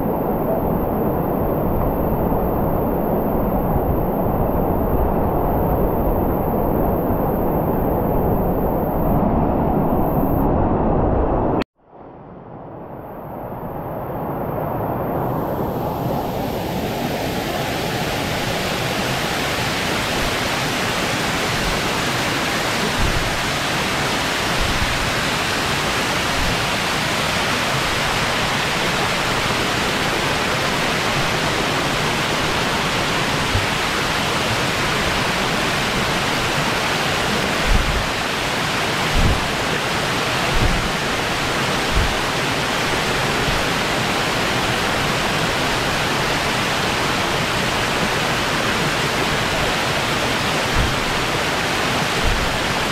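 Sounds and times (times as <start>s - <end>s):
waterfall rushing: 16.0s - 52.9s
low thumps: 37.6s - 38.0s, 39.1s - 39.5s, 40.5s - 41.0s, 41.9s - 42.2s, 50.7s - 51.2s, 52.2s - 52.7s.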